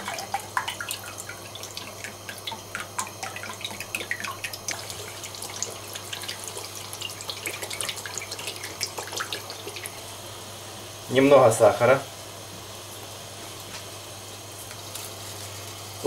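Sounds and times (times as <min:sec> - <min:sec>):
oil bubbling with pops and crackles: 0:00.0 - 0:10.2
sauce pouring: 0:00.0 - 0:10.2.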